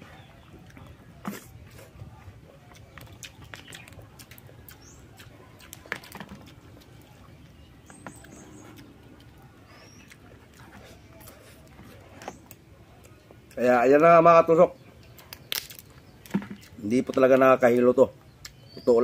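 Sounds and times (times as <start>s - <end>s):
chewing and mouth sounds: 0.1s - 13.8s, 18.3s - 18.6s
crab shell cracking: 15.2s - 16.7s.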